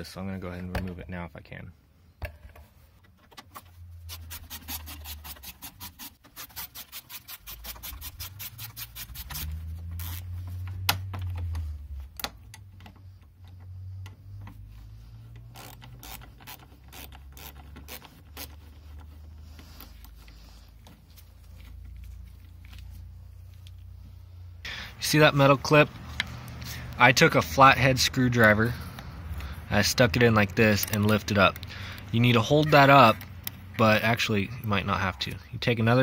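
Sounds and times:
clicks and scrapes of parts: 0:02.2 - 0:24.0, 0:28.4 - 0:33.9
hand ratchet clicking: 0:15.3 - 0:18.6.

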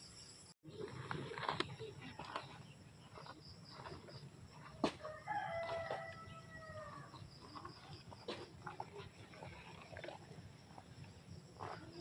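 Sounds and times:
rooster crowing: 0:05.0 - 0:07.1.

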